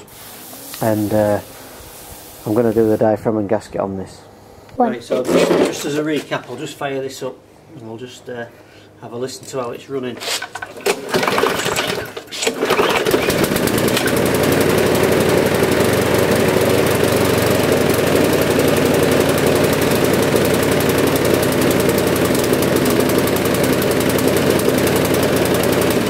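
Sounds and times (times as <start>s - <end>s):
lawnmower engine running lumpy: 10.5s - 26.0s.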